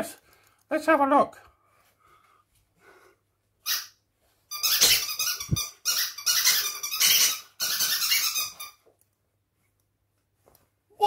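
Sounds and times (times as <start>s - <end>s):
squirrel-like squeaking and chattering: 3.6s - 8.8s.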